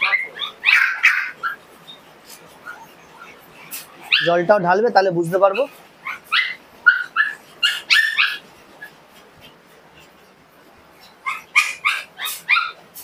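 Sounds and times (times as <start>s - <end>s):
small dogs yapping: 0.0s - 4.6s, 5.4s - 10.2s, 10.9s - 13.0s.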